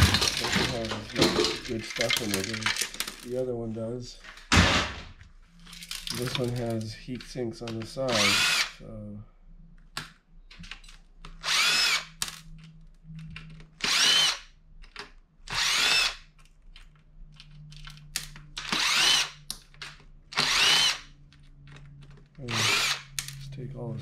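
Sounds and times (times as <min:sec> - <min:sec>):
drill motor whine: 0:08.1 - 0:08.7, 0:11.4 - 0:12.1, 0:13.8 - 0:14.5, 0:15.5 - 0:16.2, 0:18.6 - 0:19.4, 0:20.4 - 0:21.1, 0:22.5 - 0:23.1.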